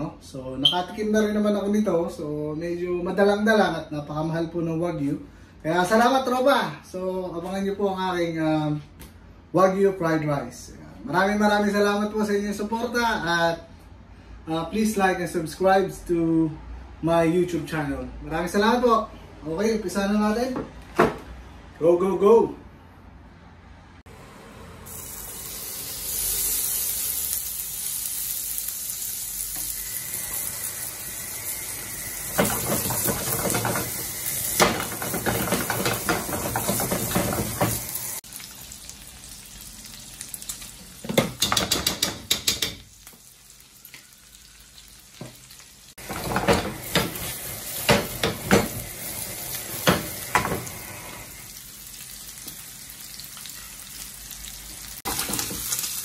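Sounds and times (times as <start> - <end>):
meat sizzling in a frying pan: 24.9 - 56.0
clatter and scraping in pan: 32.4 - 34.0, 34.6 - 37.8, 46.0 - 48.8.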